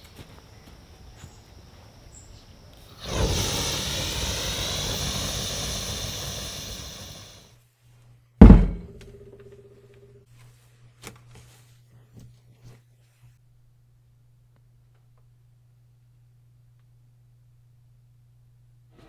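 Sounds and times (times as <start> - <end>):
flame whooshing: 3.0 - 7.5
low steady hum: 8.4 - 10.3.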